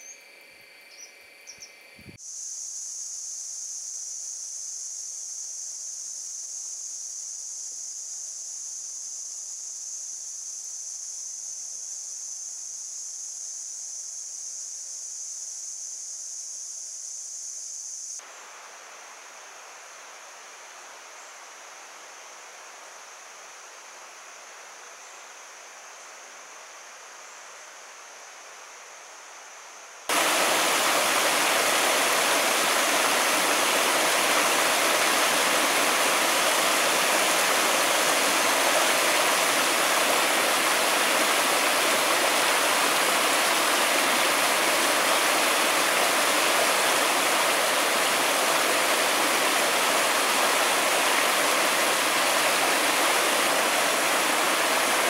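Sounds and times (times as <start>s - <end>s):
stream rushing over rocks: 30.1s - 55.0s.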